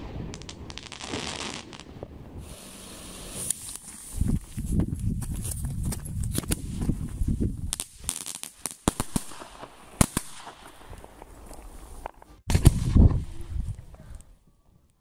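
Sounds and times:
fireworks crackling pops: 0.0 - 4.8, 5.8 - 14.0
firework rushing burn: 0.3 - 4.2.

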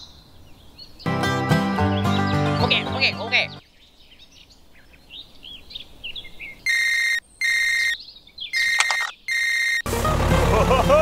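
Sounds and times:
faint bird chirps: 3.6 - 9.8
phone ringtone pulses: 8.6 - 9.8.

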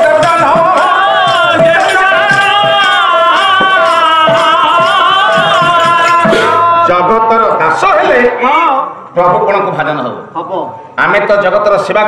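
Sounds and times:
drum strokes: 0.0 - 7.6.

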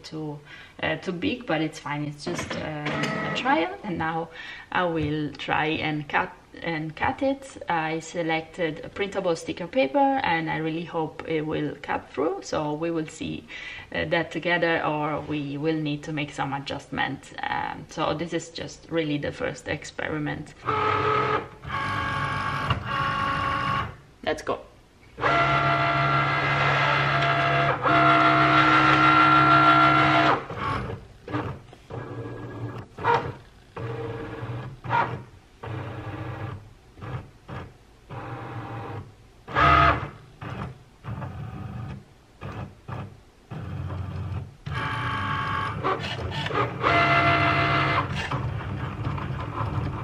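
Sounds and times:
cutting machine motors whining: 20.6 - 24.0, 25.2 - 50.0.

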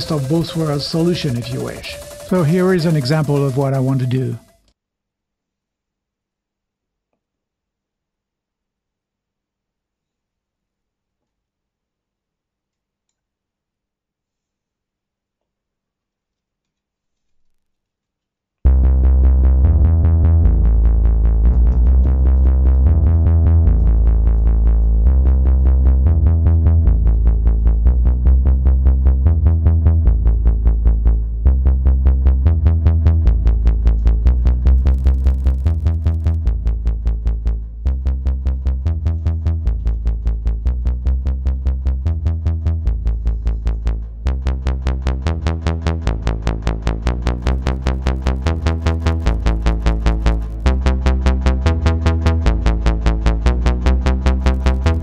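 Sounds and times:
synthesizer bass sequence: 0.0 - 4.6, 18.7 - 55.0.

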